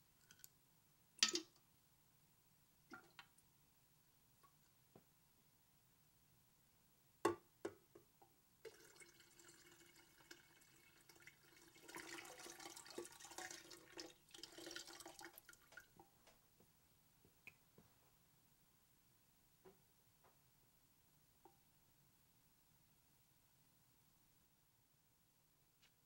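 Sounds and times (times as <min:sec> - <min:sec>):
water pouring into water: 0:08.7 - 0:15.8.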